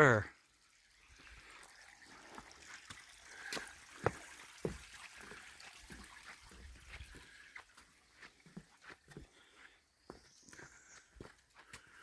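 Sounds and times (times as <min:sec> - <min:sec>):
faint creek trickling: 0:00.0 - 0:12.0
footsteps on wooden planks: 0:03.4 - 0:04.9, 0:05.8 - 0:12.0.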